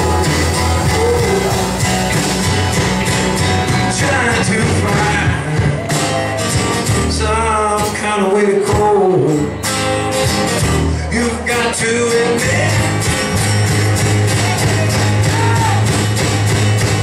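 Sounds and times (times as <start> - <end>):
drums: 0.0 - 17.0
strummed acoustic guitar: 0.0 - 17.0
man singing: 3.7 - 5.9, 7.0 - 9.6, 10.9 - 13.3.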